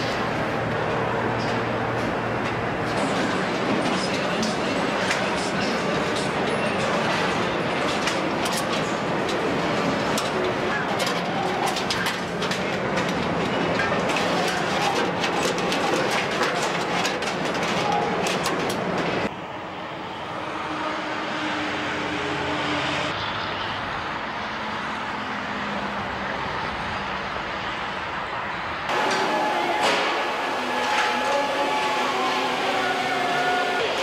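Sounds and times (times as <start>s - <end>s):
road traffic rushing: 0.0s - 34.0s
assembly line machinery clanking: 4.0s - 19.3s, 28.9s - 34.0s.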